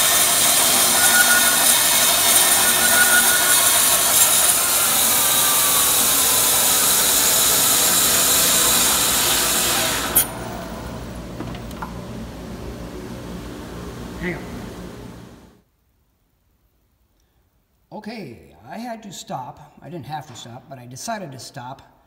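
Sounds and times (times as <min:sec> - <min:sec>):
saw stopping click: 0:00.0 - 0:10.8
band saw cutting log: 0:00.0 - 0:11.2
quiet steady machine hum: 0:00.0 - 0:15.6.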